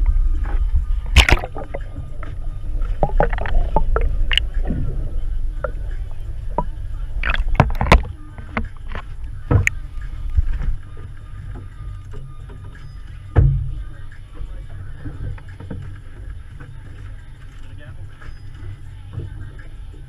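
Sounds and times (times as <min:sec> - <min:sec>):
wind and water rumble: 0:00.0 - 0:20.0
sharp knocks and clicks: 0:07.2 - 0:09.8.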